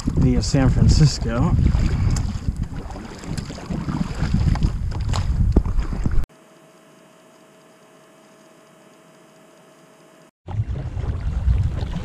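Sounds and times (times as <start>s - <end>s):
wind buffeting microphone: 0.0s - 6.2s
paddle splashing in water: 1.1s - 6.2s.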